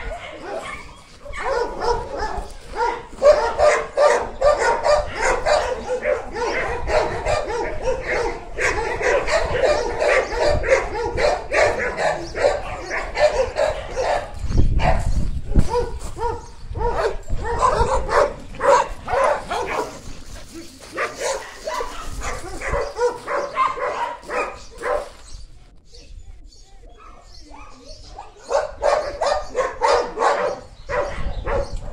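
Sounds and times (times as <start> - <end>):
dogs barking: 0.0 - 25.4, 27.0 - 31.9.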